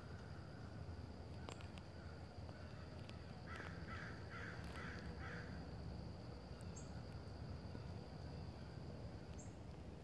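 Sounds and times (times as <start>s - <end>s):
high insect trill: 0.0s - 10.0s
crow cawing: 3.5s - 5.6s.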